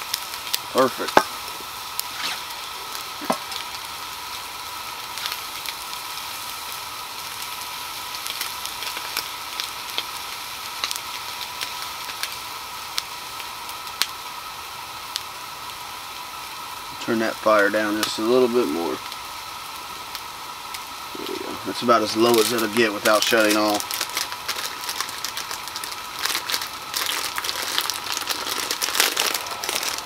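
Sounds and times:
sausage sizzling in a frying pan: 0:00.0 - 0:30.0
sharp pops: 0:00.8 - 0:03.9.

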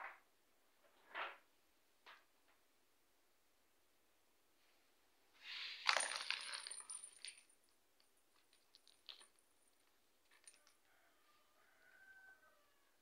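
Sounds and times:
bell ball jingling and rattling: 0:05.9 - 0:07.5.

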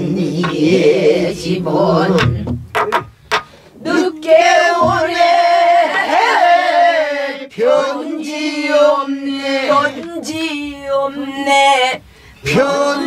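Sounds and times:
woman singing with vibrato: 0:00.0 - 0:02.5, 0:03.8 - 0:06.9, 0:09.2 - 0:13.0
barrel drum strokes: 0:02.1 - 0:03.6, 0:04.6 - 0:05.4.

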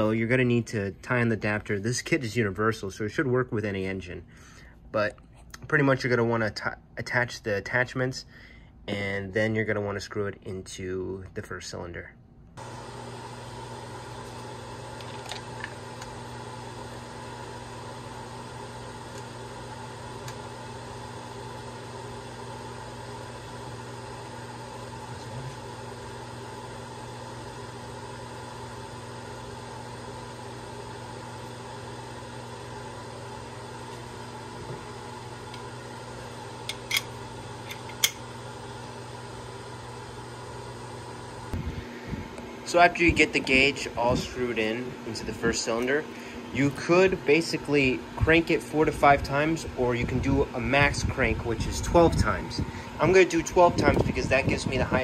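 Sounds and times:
steady fan hum: 0:00.0 - 0:55.0
steady background hum: 0:30.6 - 0:55.0.

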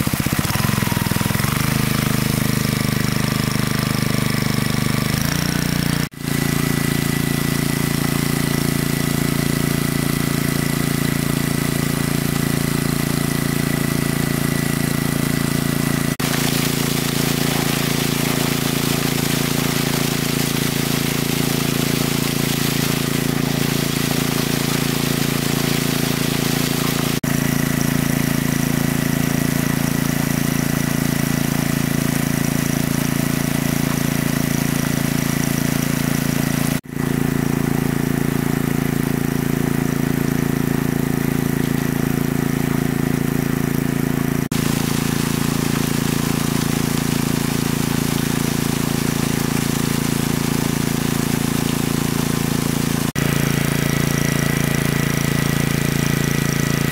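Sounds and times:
water pump engine running: 0:00.0 - 0:56.9.

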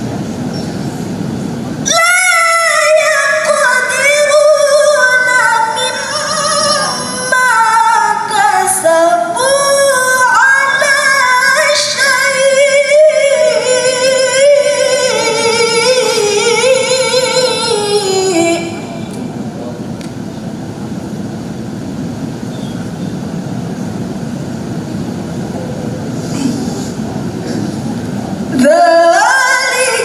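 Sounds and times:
woman reciting melodically: 0:01.8 - 0:19.1, 0:28.4 - 0:30.0.

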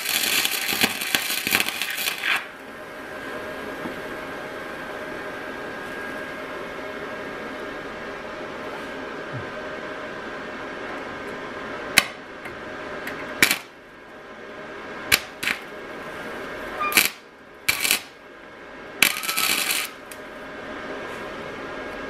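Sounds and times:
crackling weld bursts: 0:00.0 - 0:02.6, 0:13.4 - 0:13.8, 0:15.1 - 0:15.7, 0:16.8 - 0:18.2, 0:19.0 - 0:20.2
steady hum: 0:00.0 - 0:22.0.

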